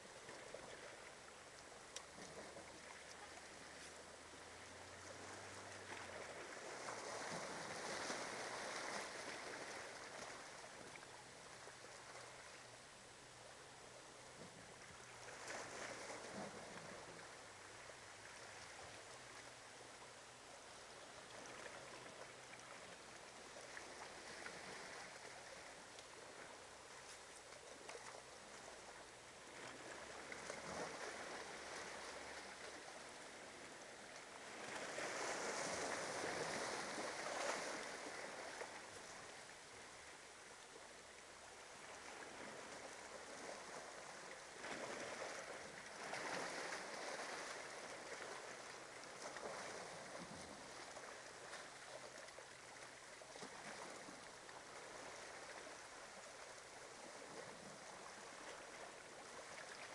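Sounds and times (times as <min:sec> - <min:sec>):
small waves washing on beach: 0:00.0 - 0:59.9.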